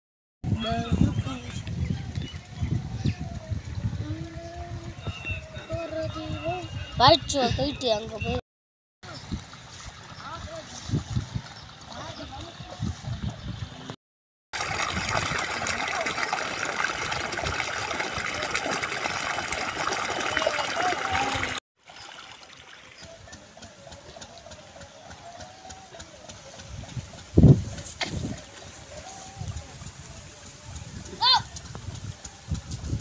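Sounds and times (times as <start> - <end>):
water sloshing and splashing underfoot: 9.1 - 13.4, 14.6 - 23.4.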